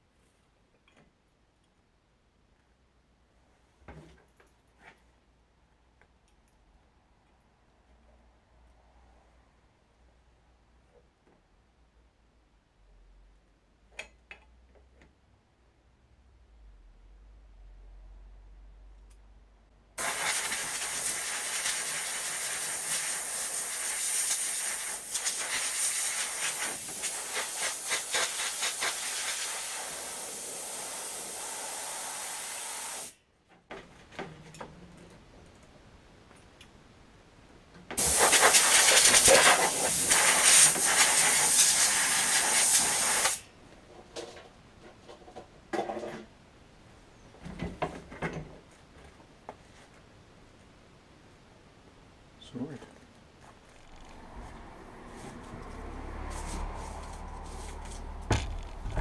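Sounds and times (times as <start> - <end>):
air blow gun hissing: 20.0 - 33.2, 38.0 - 43.4.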